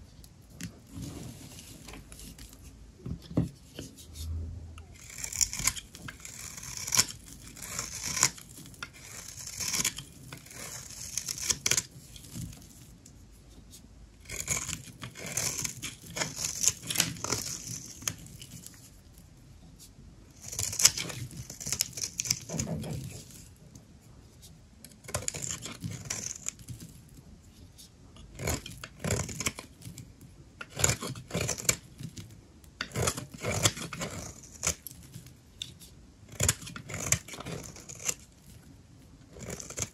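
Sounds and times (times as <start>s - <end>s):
knife cutting soap: 4.8s - 19.0s, 20.3s - 23.5s, 24.4s - 27.0s, 28.2s - 39.9s.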